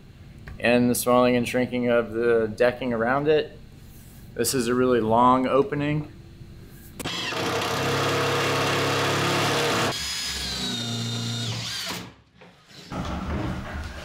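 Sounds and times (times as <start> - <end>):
power tool motor running: 7.0 - 12.1.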